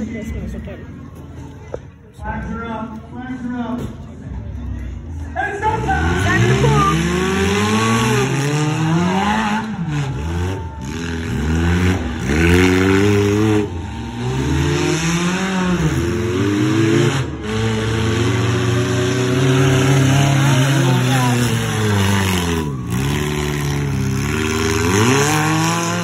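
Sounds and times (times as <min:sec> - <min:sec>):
truck engine revving hard: 0:05.6 - 0:26.0.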